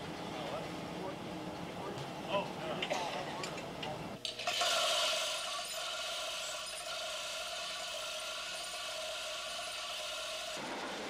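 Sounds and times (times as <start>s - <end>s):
electric chain hoist whining: 4.2s - 11.0s.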